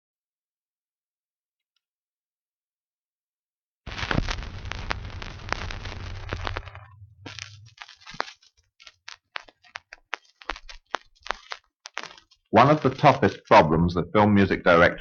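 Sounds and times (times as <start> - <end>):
record hiss and rumble: 3.9 - 7.8
record clicks and pops: 3.9 - 13.7.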